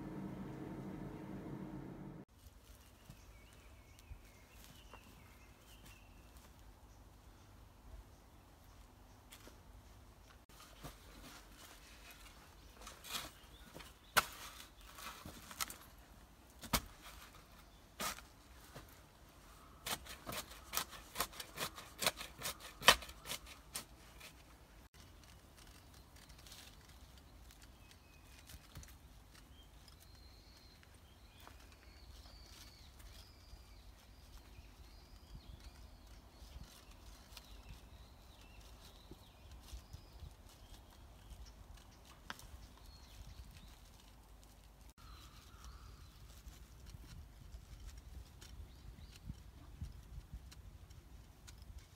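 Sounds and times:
spade digging into dry soil: 19.7 - 24.4.

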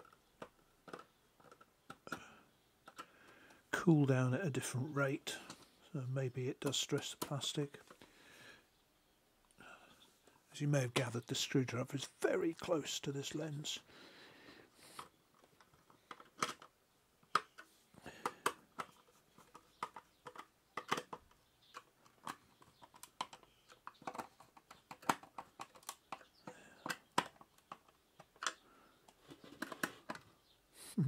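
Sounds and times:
hands handling plastic: 0.0 - 2.2, 14.9 - 30.3.

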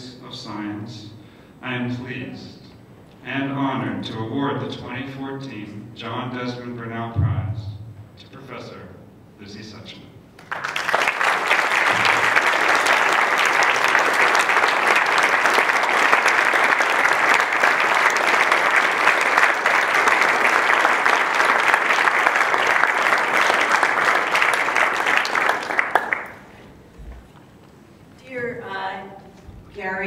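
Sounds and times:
audience applauding: 10.4 - 26.6.

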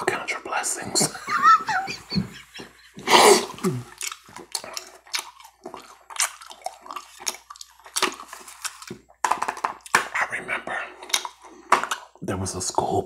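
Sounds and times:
wet chewing mouth sounds: 3.0 - 9.1.

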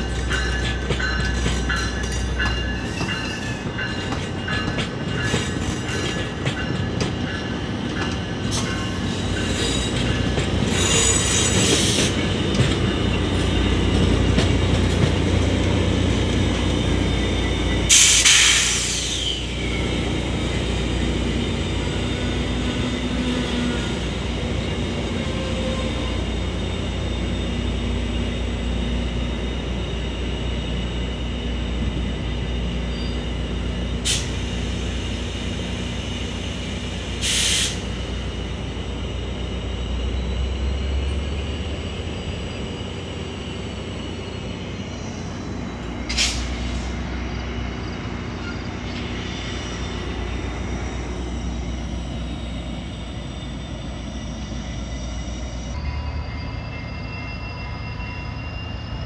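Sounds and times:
diesel locomotive engine rumble: 0.0 - 59.0
air hissing: 17.9 - 19.6, 34.0 - 38.3.

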